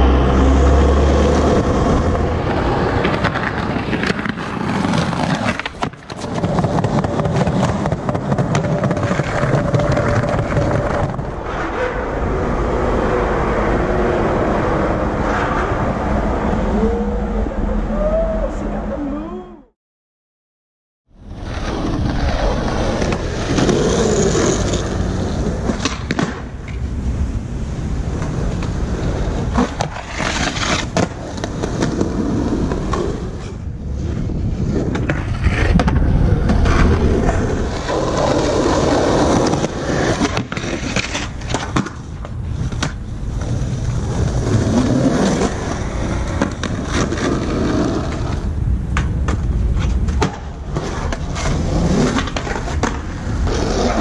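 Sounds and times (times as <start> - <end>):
skateboard wheels rolling on concrete: 0.0 - 19.0, 21.1 - 54.0
skateboard clacking on ground: 2.5 - 11.3, 21.5 - 26.9, 34.8 - 54.0.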